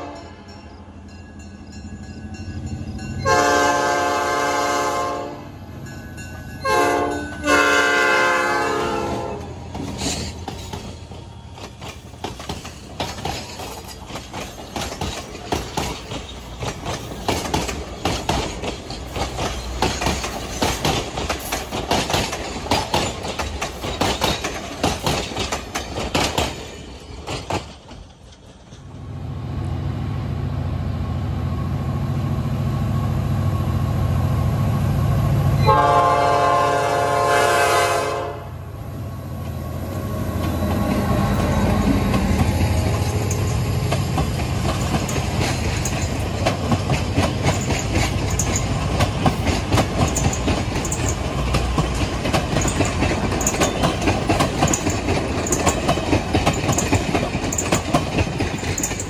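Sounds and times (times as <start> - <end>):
train horn chord: 0.0 - 0.4, 3.2 - 5.6, 6.6 - 9.6, 35.6 - 38.7
diesel locomotive rumbling: 0.0 - 59.0
train wheels clicking on rail joints: 5.7 - 29.2, 39.3 - 59.0.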